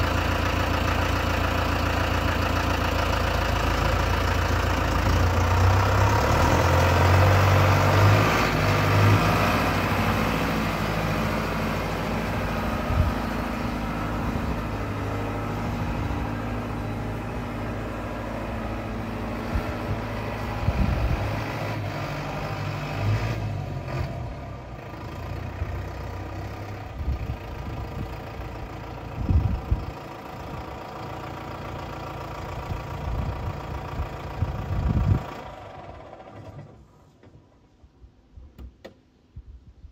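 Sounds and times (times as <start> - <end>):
tractor diesel engine running: 0.0 - 38.0.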